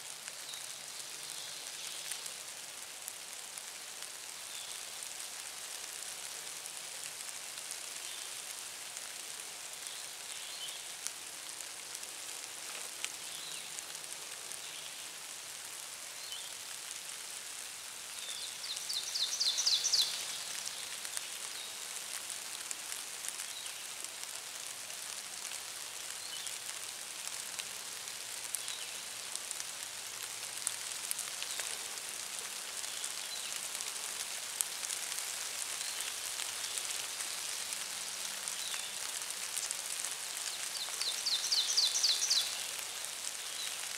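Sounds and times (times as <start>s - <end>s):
steady high hiss: 0.0s - 43.9s
songbird trill: 18.2s - 20.4s, 40.5s - 42.7s.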